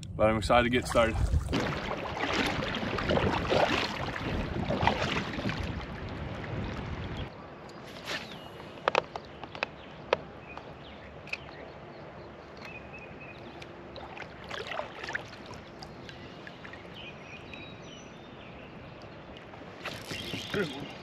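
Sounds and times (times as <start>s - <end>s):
open-air background: 0.0s - 21.0s.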